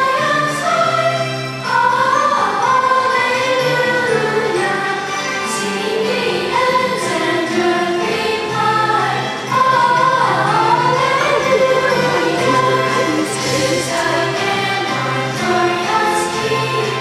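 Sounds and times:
choir singing a hymn: 0.0s - 17.0s
instrumental accompaniment: 10.2s - 15.2s.

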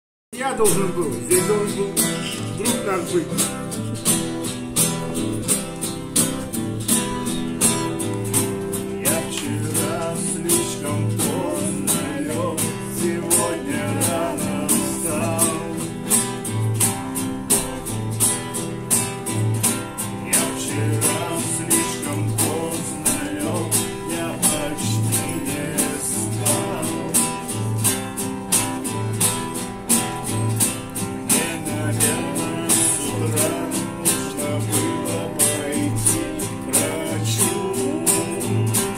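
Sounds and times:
acoustic guitar strumming: 0.4s - 38.9s
classical guitar strumming: 0.4s - 38.9s
men singing: 0.5s - 4.4s, 7.7s - 16.7s, 19.7s - 28.0s, 31.0s - 38.9s.

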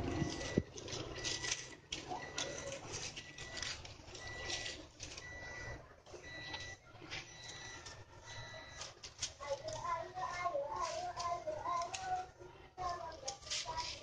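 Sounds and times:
dry sticks rustling and clicking: 0.1s - 5.4s, 8.7s - 14.0s.

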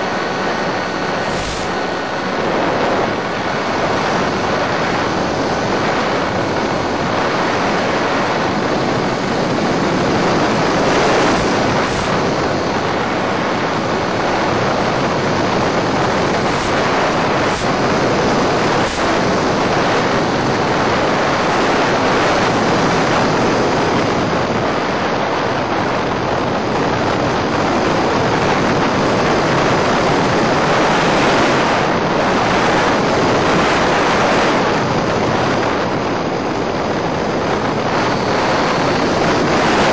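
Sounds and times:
electric motor throttling down: 0.0s - 19.6s
steady rushing hiss: 0.0s - 25.0s, 26.7s - 39.9s.

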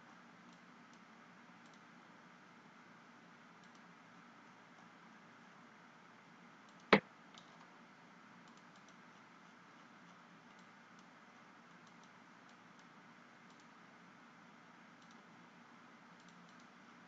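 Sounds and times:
low room hiss: 0.0s - 17.0s
mouse and keyboard clicks: 1.6s - 1.9s, 3.6s - 3.9s, 11.7s - 12.9s, 13.5s - 13.8s, 15.0s - 15.2s, 16.2s - 16.8s.

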